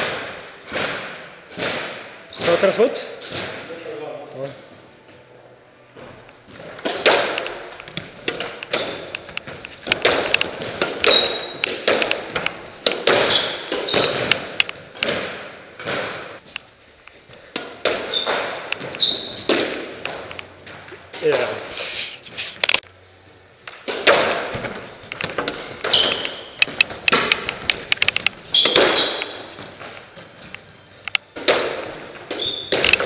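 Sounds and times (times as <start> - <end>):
shoes squeaking on wooden floor: 5.9 - 15.2, 17.9 - 22.8, 24.5 - 33.0
squash ball knocks: 6.5 - 16.4, 17.5 - 20.4, 23.8 - 29.9, 31.4 - 33.0.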